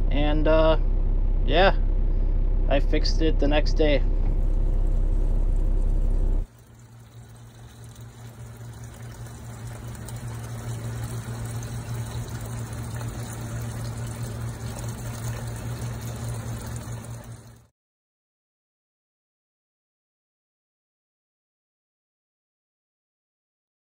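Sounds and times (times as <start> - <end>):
louder hum: 0.0 - 6.5
steady low hum: 0.0 - 17.7
fuel pouring into a bucket: 4.3 - 17.7.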